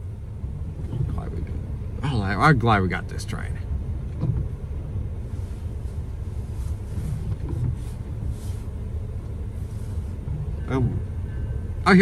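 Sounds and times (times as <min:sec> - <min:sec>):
idling engines rumbling: 0:00.0 - 0:12.0
faint hiss: 0:05.2 - 0:12.0.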